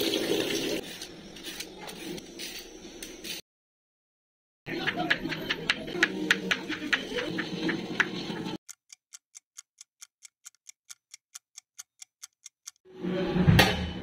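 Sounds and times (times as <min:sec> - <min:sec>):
clock-like ticking: 0:08.6 - 0:12.9.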